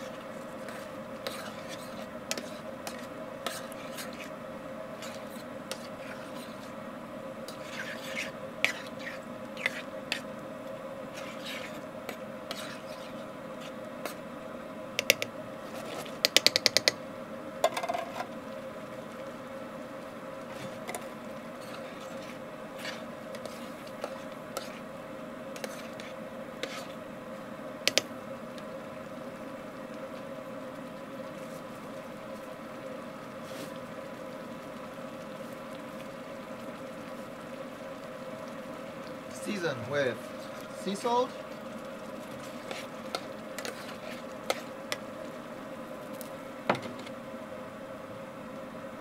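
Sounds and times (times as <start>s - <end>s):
food simmering: 0.0s - 49.0s
steady hum: 0.0s - 49.0s
spoon scraping a metal pan: 0.6s - 4.3s, 7.5s - 10.2s, 11.2s - 14.2s, 25.6s - 27.0s, 42.4s - 45.0s.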